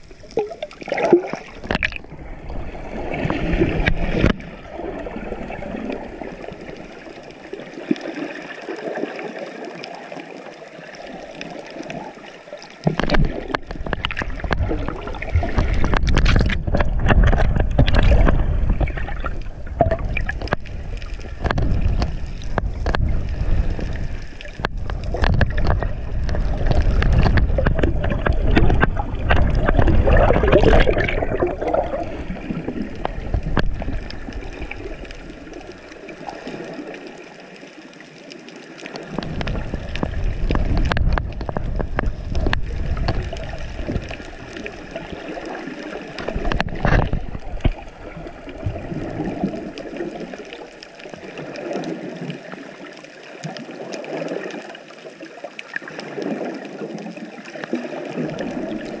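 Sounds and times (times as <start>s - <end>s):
clicks and crackles: 0.0s - 2.6s, 3.2s - 4.5s, 5.4s - 59.0s
muffled underwater rushing water: 0.0s - 59.0s.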